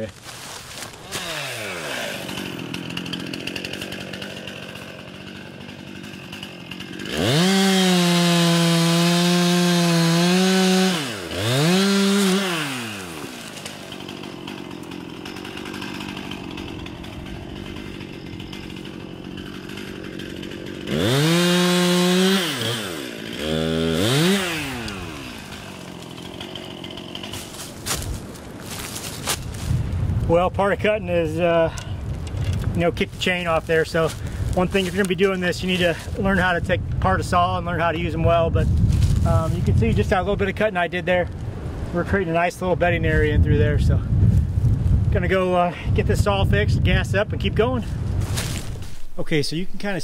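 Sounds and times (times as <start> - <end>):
chainsaw idling and revving: 0.0 - 29.8, 31.2 - 37.9, 38.6 - 41.3.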